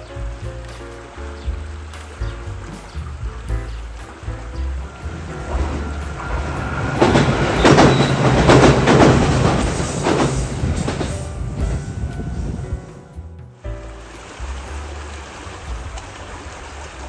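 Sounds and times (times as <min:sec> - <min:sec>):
train wheels clacking on bridge: 0:03.2 - 0:12.8.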